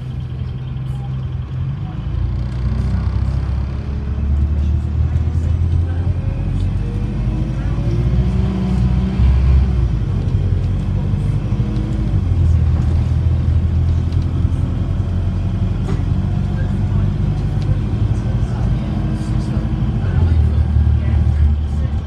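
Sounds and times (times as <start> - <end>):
bus diesel engine droning: 0.0 - 22.0.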